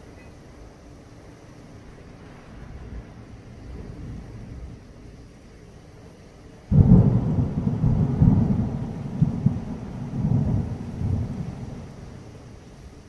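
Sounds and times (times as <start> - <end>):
heavy rain hissing: 0.0 - 13.0
thunder clap and rumble: 6.7 - 13.0.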